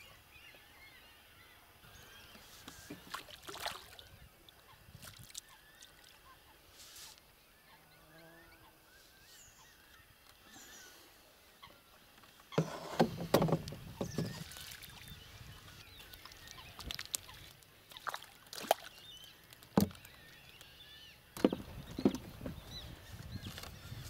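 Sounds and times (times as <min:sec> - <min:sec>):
water sloshing against boat: 0:02.2 - 0:06.4, 0:12.5 - 0:20.3, 0:21.3 - 0:23.9.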